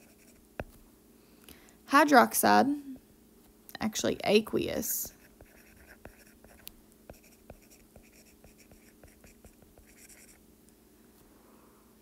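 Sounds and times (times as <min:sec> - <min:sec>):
stylus tapping on tablet screen: 0:00.6 - 0:00.8.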